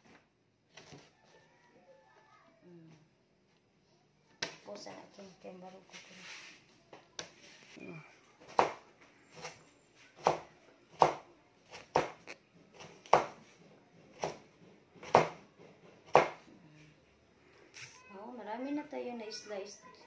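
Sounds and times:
knife chopping on cutting board: 10.2s - 13.4s, 14.1s - 16.4s.

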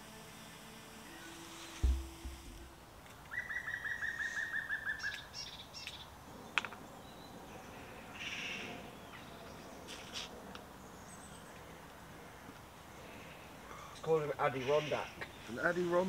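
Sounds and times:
songbird whistled notes: 3.3s - 5.6s
faint bird chirps: 3.3s - 6.1s.

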